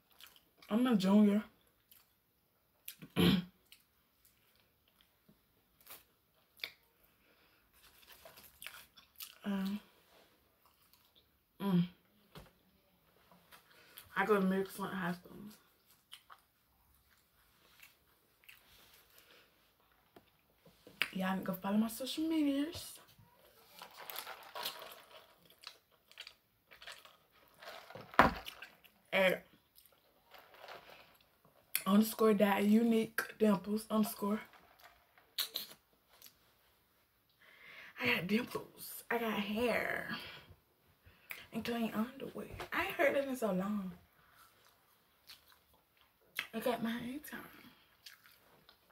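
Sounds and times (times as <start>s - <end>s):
soft rustle: 7.7s - 8.8s, 29.8s - 31.7s
eating rustles and clicks: 23.3s - 31.8s.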